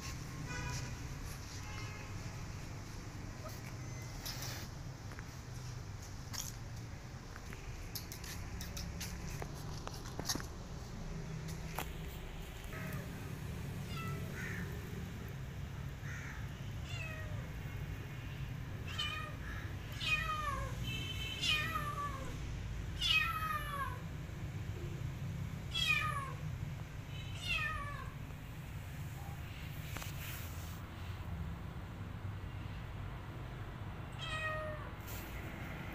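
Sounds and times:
cat meowing: 0:13.8 - 0:14.6, 0:16.8 - 0:17.4, 0:23.0 - 0:24.0, 0:25.7 - 0:26.4, 0:27.4 - 0:28.2, 0:34.1 - 0:34.9.

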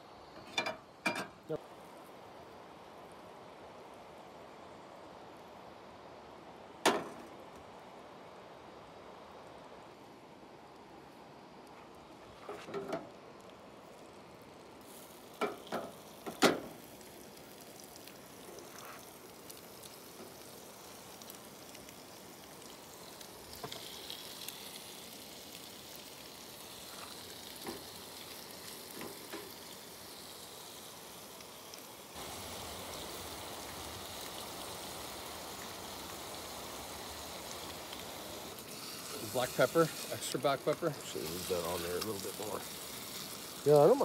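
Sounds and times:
fish sizzling in a frying pan: 0:13.6 - 0:44.0.

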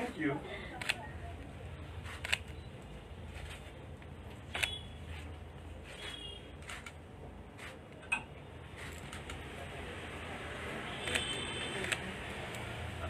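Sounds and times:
camera shutter clicks: 0:04.5 - 0:04.8, 0:11.0 - 0:12.1.

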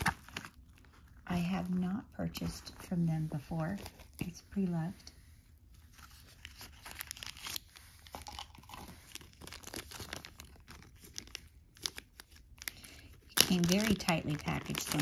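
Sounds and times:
plastic bag crinkling: 0:00.0 - 0:01.7, 0:05.8 - 0:15.0.

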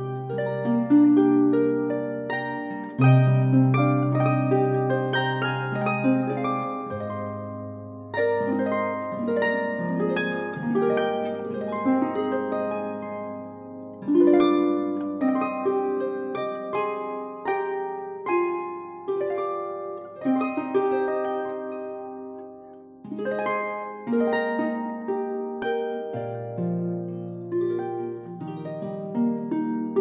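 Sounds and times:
harp music: 0:00.0 - 0:30.0.

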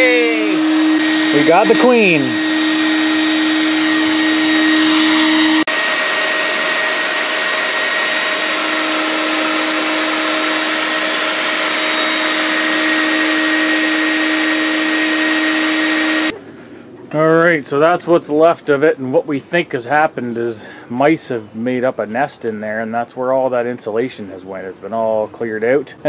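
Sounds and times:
vacuum motor whine: 0:00.0 - 0:16.4.

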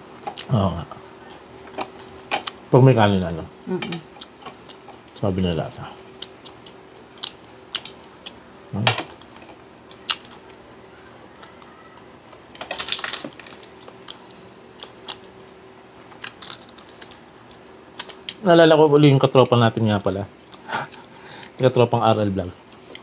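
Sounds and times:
chewing: 0:00.2 - 0:00.5, 0:04.0 - 0:05.2, 0:06.2 - 0:08.4, 0:09.1 - 0:18.4
crunching: 0:11.3 - 0:15.3, 0:16.0 - 0:18.4.

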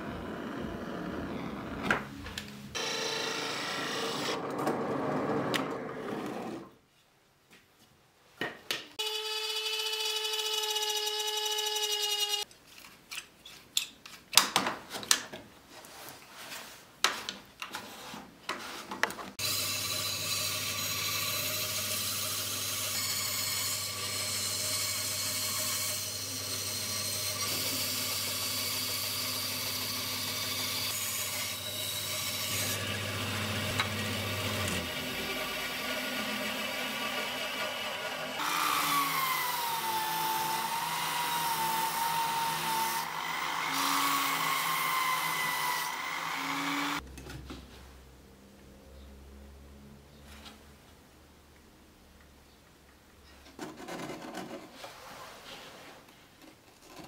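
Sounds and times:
bandsaw humming: 0:19.4 - 0:47.0.

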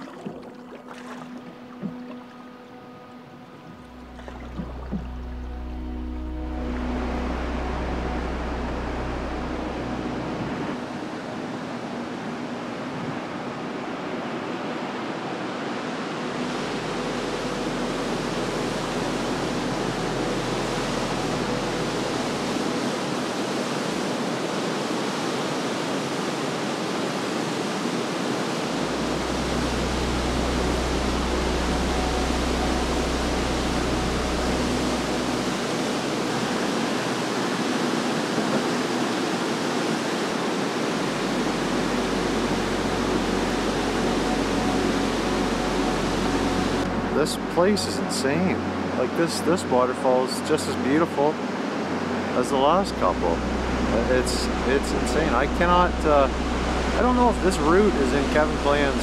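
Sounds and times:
waterfall roaring: 0:00.0 - 0:59.0.

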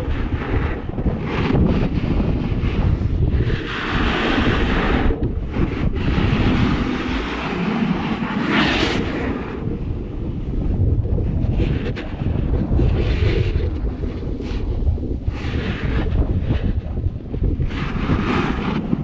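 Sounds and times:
wind buffeting microphone: 0:00.0 - 0:19.0
snow hissing under snowboard: 0:01.9 - 0:09.6.

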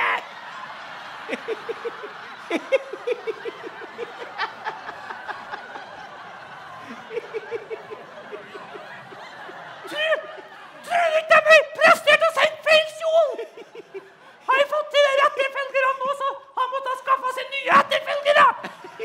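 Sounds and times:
rhythmic chuckling laughter: 0:00.2 - 0:10.9, 0:18.6 - 0:19.0.

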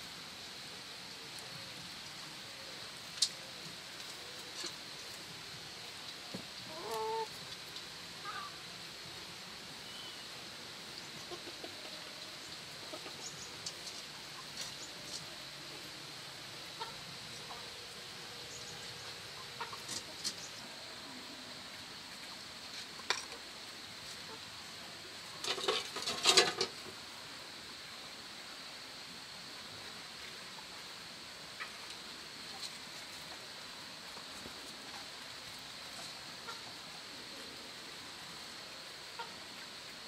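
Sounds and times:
faint high hiss: 0:00.0 - 0:40.0
chickens clucking: 0:06.7 - 0:07.4, 0:11.1 - 0:15.3, 0:16.7 - 0:17.8, 0:19.3 - 0:20.7.

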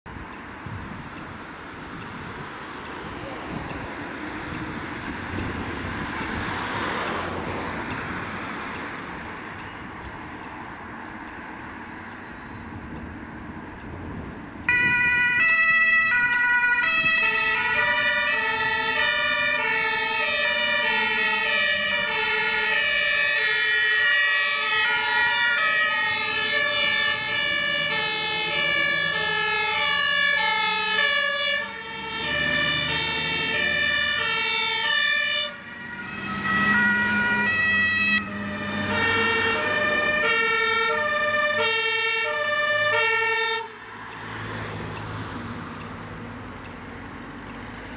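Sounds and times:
two-tone emergency sirens: 0:14.6 - 0:46.0.

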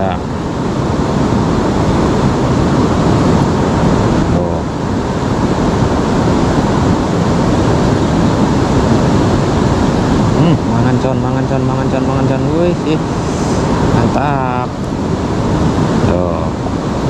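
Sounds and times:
river water rushing over rocks: 0:12.8 - 0:14.1, 0:14.7 - 0:17.0.

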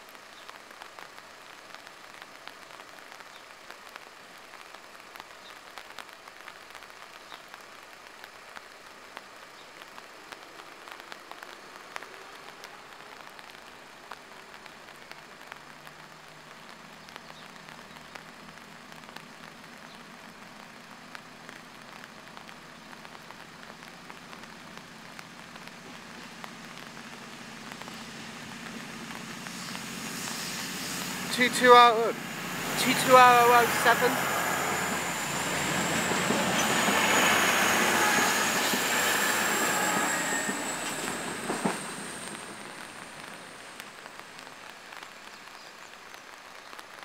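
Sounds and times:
rain pattering: 0:00.0 - 0:47.0
diesel train approaching hum: 0:24.6 - 0:44.3.

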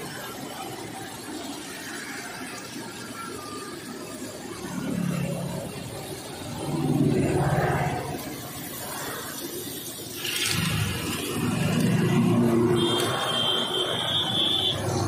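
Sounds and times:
high steady tone: 0:12.5 - 0:15.0.

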